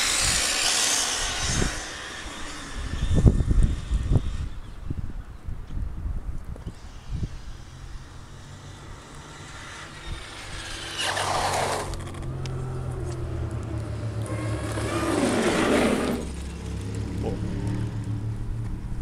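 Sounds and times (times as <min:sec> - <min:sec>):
electric motor whining: 0:00.0 - 0:05.1, 0:06.7 - 0:17.0
tyres hissing on asphalt: 0:06.8 - 0:17.1.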